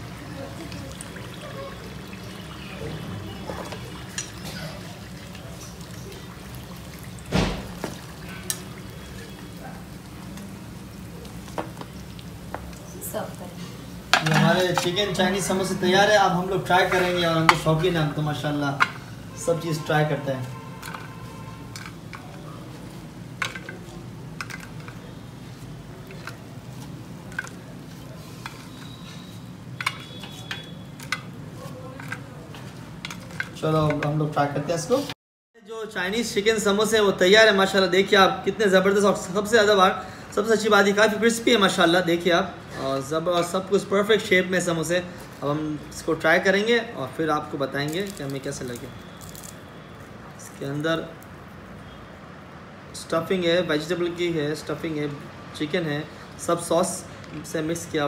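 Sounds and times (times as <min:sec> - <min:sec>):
food sizzling in hot oil: 0:00.0 - 0:19.6.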